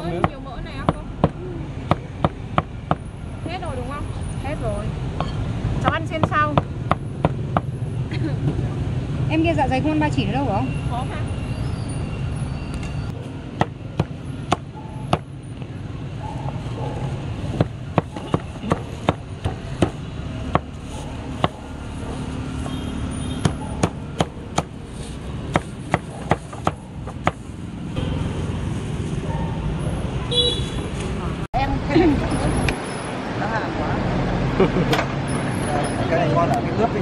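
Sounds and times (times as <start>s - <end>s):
street traffic: 0.0s - 37.0s
cleaver chopping on wooden block: 5.8s - 7.7s, 13.6s - 15.3s, 17.6s - 20.7s, 21.4s - 21.6s, 23.4s - 24.8s, 25.5s - 27.4s.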